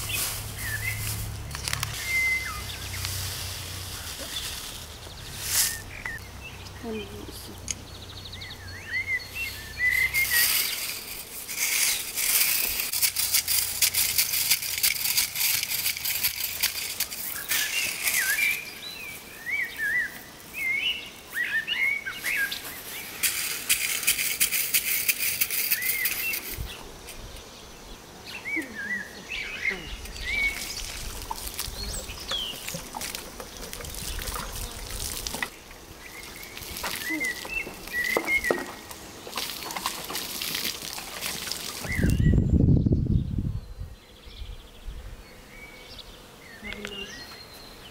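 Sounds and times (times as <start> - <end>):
garden tool scraping stony soil: 0.0 - 6.2, 9.4 - 20.3, 22.1 - 27.5, 29.6 - 42.3
songbirds chirping: 0.0 - 13.0, 15.6 - 23.7, 25.4 - 47.9
water splashing onto soil: 30.5 - 31.8, 32.6 - 42.1.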